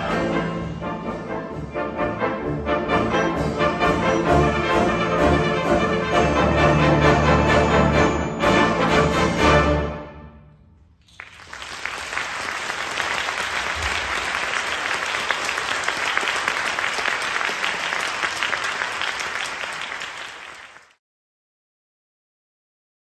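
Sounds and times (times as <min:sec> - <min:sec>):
audience applause: 0:11.0 - 0:21.0.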